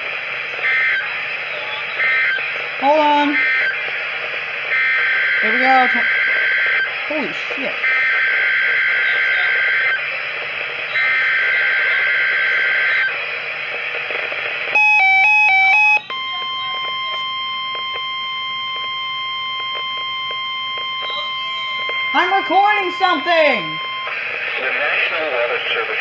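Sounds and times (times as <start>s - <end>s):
radio hiss: 0.0s - 15.0s, 15.8s - 26.0s
buzzy warbling data bursts: 4.7s - 10.0s
multi-tone alarm chime: 14.8s - 24.1s
steady single-pitch alert tone: 14.8s - 24.1s.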